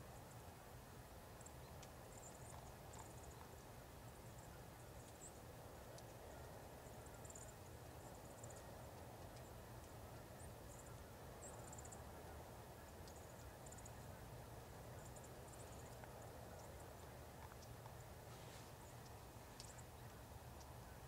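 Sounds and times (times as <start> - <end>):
faint hiss: 0.0 - 21.0.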